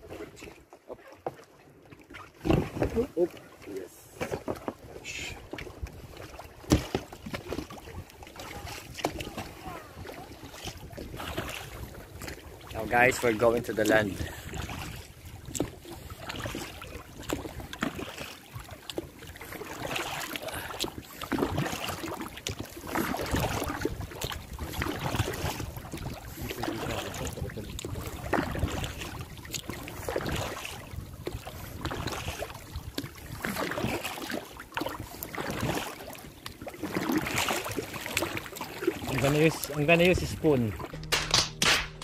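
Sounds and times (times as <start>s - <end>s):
water splashing against rubber hull: 0.0s - 42.0s
wind buffeting microphone: 23.5s - 32.1s.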